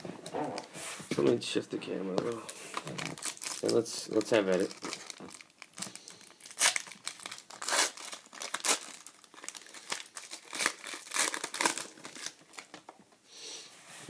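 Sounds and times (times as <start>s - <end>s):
foil pack tearing and crinkling: 2.7s - 12.8s.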